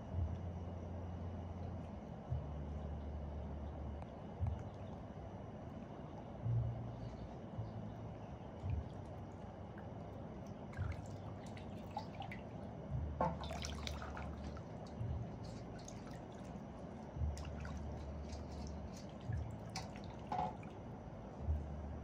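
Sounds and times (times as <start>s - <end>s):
water splashing in metal basin: 10.7s - 12.5s, 13.2s - 16.6s, 17.3s - 20.8s.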